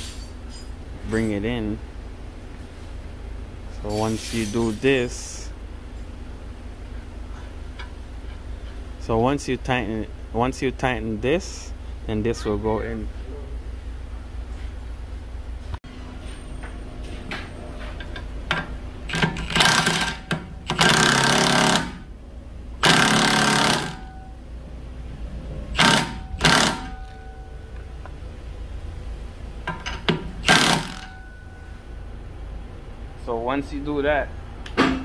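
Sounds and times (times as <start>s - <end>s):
impact wrench hammering: 18.5s - 22.1s, 22.8s - 24.4s, 25.7s - 27.4s, 29.7s - 31.4s.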